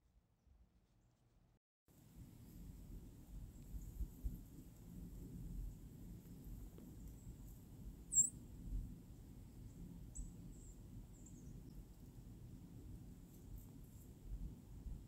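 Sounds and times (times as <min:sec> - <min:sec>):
small bird chirping: 0:08.1 - 0:08.4, 0:09.7 - 0:11.8.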